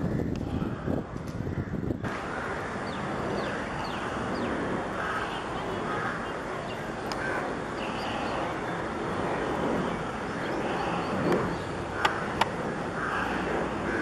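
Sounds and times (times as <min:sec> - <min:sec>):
city background noise: 0:00.0 - 0:14.0
distant jet airliner: 0:00.0 - 0:14.0
bird calls: 0:02.1 - 0:08.9, 0:09.8 - 0:14.0.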